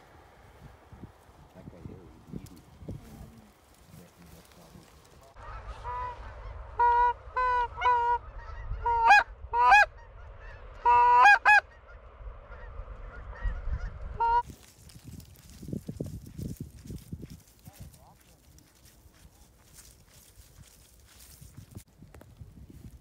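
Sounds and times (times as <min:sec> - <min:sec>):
goose honking: 0:05.4 - 0:14.4.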